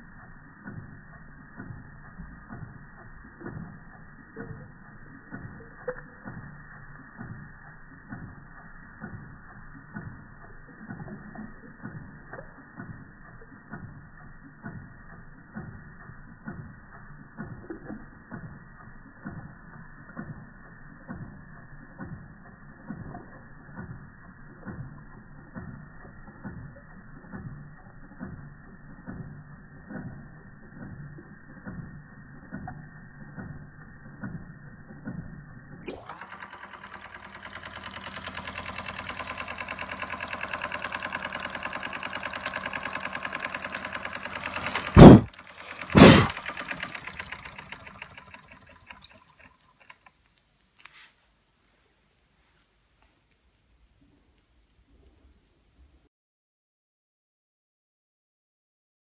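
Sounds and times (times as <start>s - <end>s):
toy steam engine knocking: 35.9s - 50.2s.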